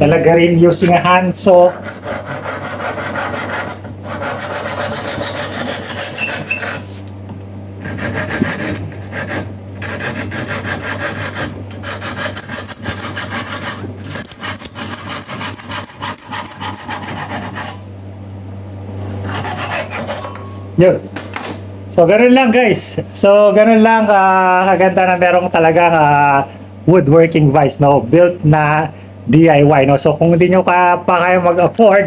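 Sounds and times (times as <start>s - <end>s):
hand saw cutting wood: 1.6s - 6.9s, 7.8s - 17.8s, 19.2s - 20.3s.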